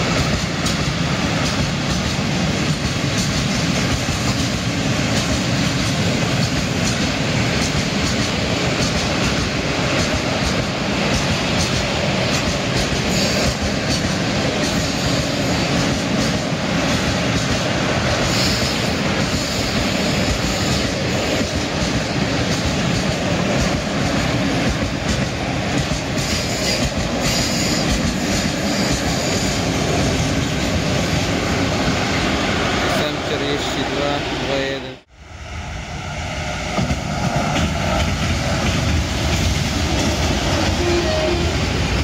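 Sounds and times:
wheels clicking over rail joints: 0.0s - 31.4s
freight train rumbling past: 0.0s - 42.0s.

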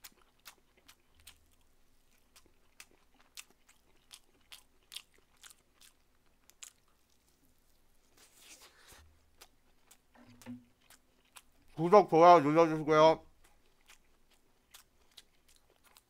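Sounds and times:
chewing mouth clicks and smacks: 0.0s - 7.3s, 9.4s - 11.8s, 13.3s - 16.0s
soft rustle: 6.9s - 9.2s.

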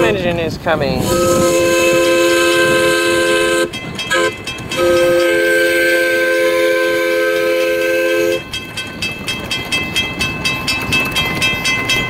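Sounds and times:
steam locomotive chuffing: 0.0s - 12.0s
steam locomotive whistle: 1.0s - 8.5s.

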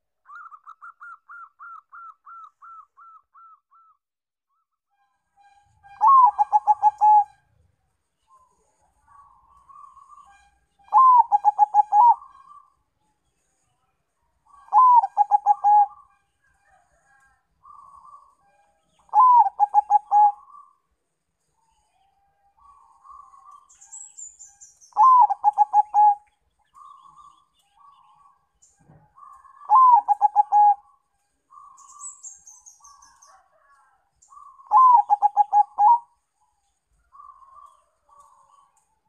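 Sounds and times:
dove cooing: 6.0s - 7.3s, 10.9s - 12.6s, 14.7s - 16.0s, 19.1s - 20.6s, 25.0s - 26.2s, 28.9s - 30.9s, 34.3s - 36.1s.

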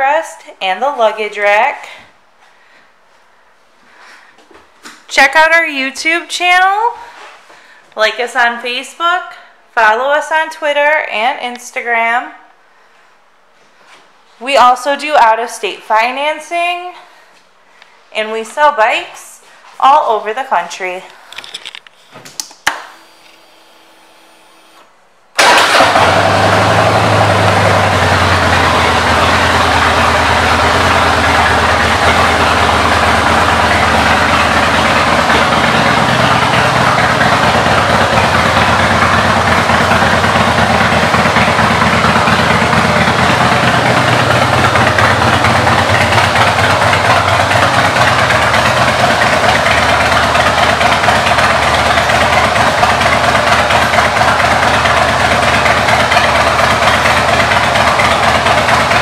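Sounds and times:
motorcycle engine starting and idling: 22.7s - 59.0s.

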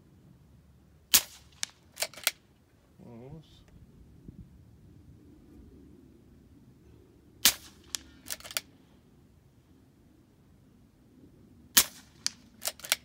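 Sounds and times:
air rifle shot crack: 1.1s - 2.4s, 7.4s - 8.7s, 11.7s - 13.0s
rifle bolt clicks: 1.6s - 2.4s, 7.5s - 8.7s, 11.8s - 13.0s.

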